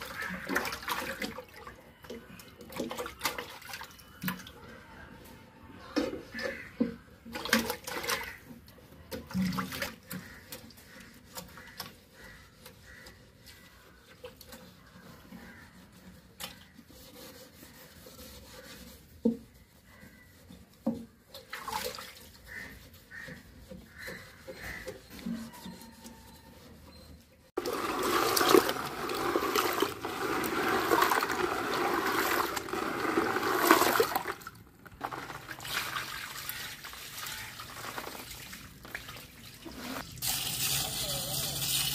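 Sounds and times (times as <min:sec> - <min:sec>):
water pouring and splashing: 0:00.0 - 0:04.6, 0:07.3 - 0:11.8, 0:20.8 - 0:22.7, 0:27.5 - 0:41.9
hands scrubbing glass: 0:09.9 - 0:35.5
small knocks and squeaks: 0:22.4 - 0:27.5.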